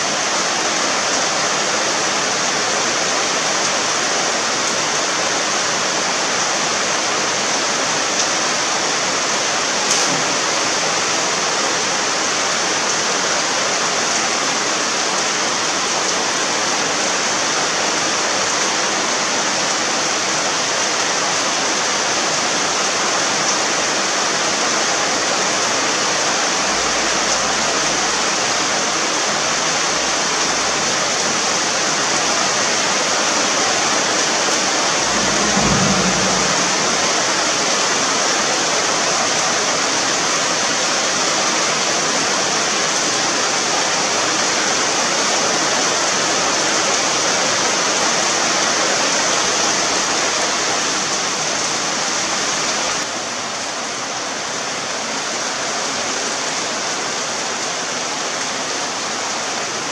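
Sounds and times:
heavy rain falling: 0.0s - 59.9s
low thump: 35.0s - 37.5s.

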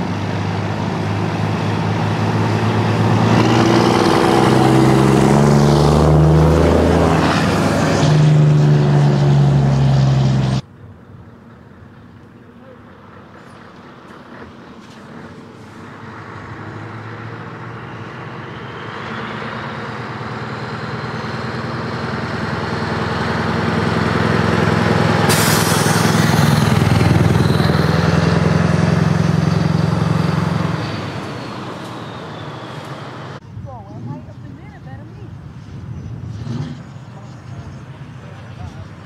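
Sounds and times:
diesel truck engine driving past: 0.0s - 39.0s
air hiss: 25.3s - 26.2s.

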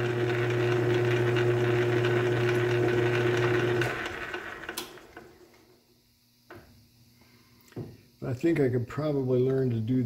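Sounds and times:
lathe motor humming with gear noise: 0.0s - 5.3s.

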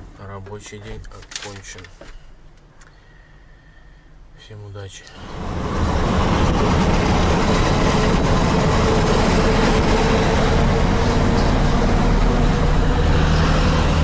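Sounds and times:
constant thin whine: 5.0s - 14.0s
truck diesel engine drone: 5.1s - 14.0s.

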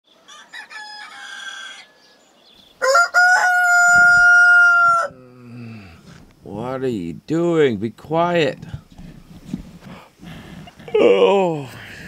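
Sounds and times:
rooster crowing: 0.3s - 2.1s, 2.8s - 5.2s.

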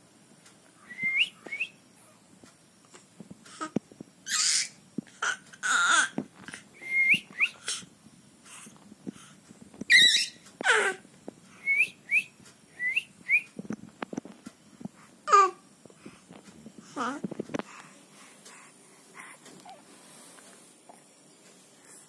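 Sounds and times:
person whistling rising chirps: 0.8s - 1.8s, 6.8s - 7.6s, 11.6s - 13.5s
breathy bursts: 15.0s - 20.8s.

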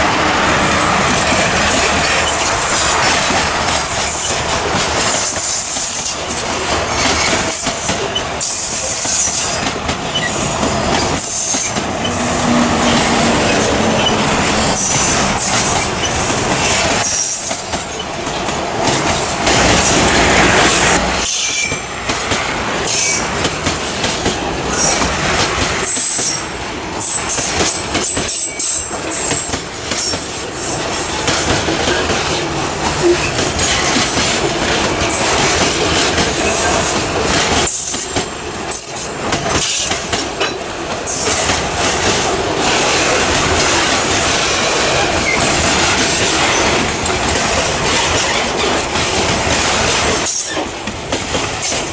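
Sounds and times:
train wheels clattering over joints: 0.8s - 51.9s
high wheel squeals: 10.1s - 10.5s, 11.1s - 18.0s.

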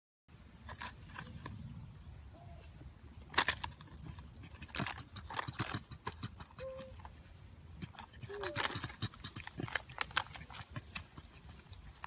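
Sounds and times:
rustling: 8.0s - 12.0s.

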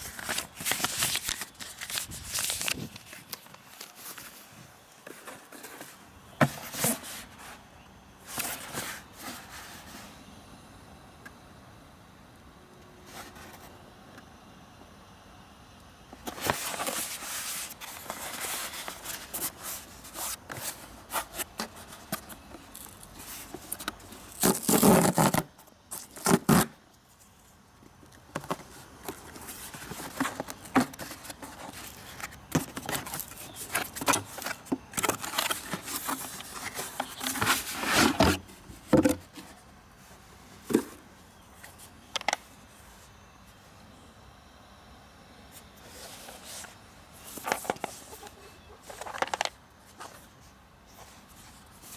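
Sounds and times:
cardboard box scraping and rustling: 0.0s - 7.6s, 28.4s - 39.6s.

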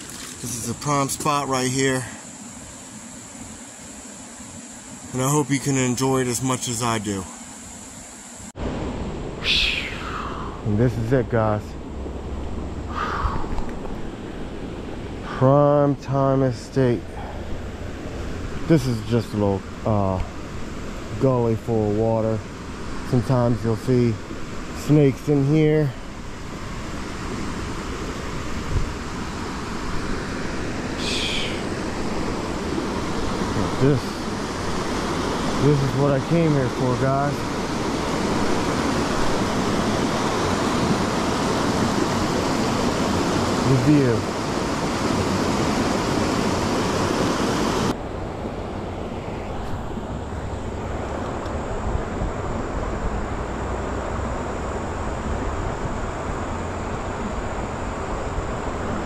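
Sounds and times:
creek water rushing over rocks: 0.0s - 3.6s, 26.0s - 48.0s
outdoor hiss: 0.0s - 59.0s
short high bird call: 9.4s - 10.3s
wind rumble on microphone: 25.6s - 59.0s.

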